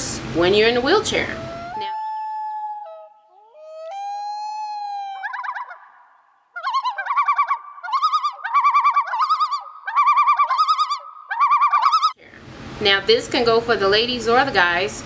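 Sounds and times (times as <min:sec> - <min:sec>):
warbling bird-like calls: 0:00.9 - 0:12.2.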